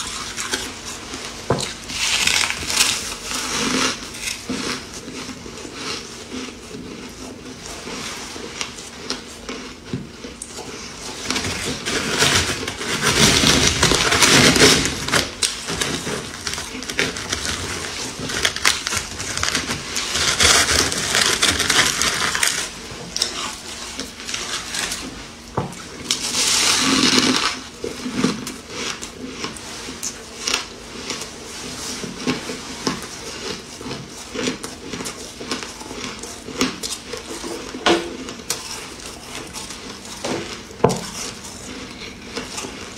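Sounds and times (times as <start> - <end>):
shaved ice crunching in hand: 0.0 - 25.2, 25.8 - 42.9.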